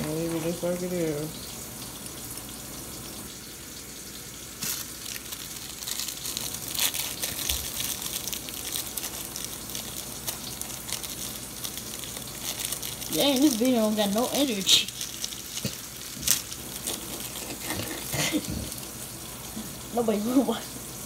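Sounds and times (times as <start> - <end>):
plastic wrapper crinkling: 4.6 - 19.0.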